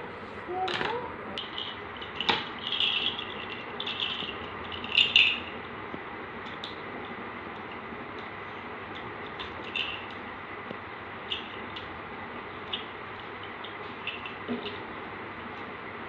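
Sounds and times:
plastic toy ball rattling: 0:00.7 - 0:05.6, 0:09.0 - 0:10.2.

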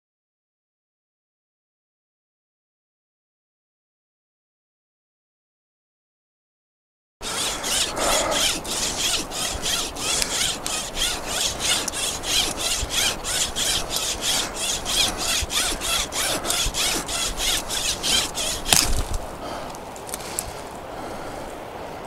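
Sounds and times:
wire saw sawing branch: 0:07.2 - 0:21.2
branch cracking: 0:07.3 - 0:20.8.

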